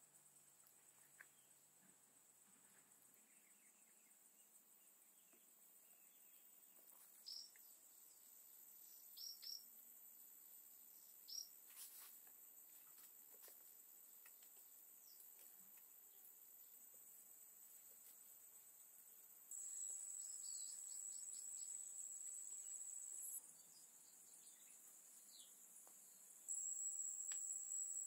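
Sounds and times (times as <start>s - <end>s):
jungle insects droning: 0.0s - 28.0s
bird chirps: 7.1s - 9.7s, 11.0s - 11.5s, 19.5s - 25.6s.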